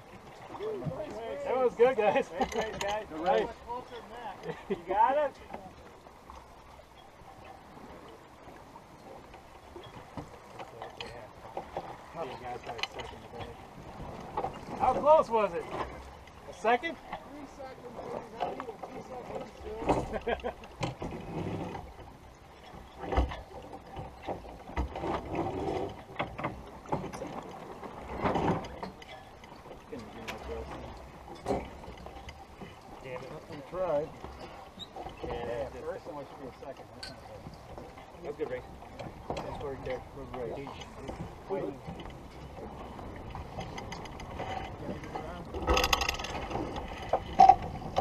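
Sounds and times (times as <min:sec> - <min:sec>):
water rushing along hull: 0:00.0 - 0:48.0
rigging clicking and knocking: 0:02.2 - 0:03.2, 0:43.2 - 0:48.0.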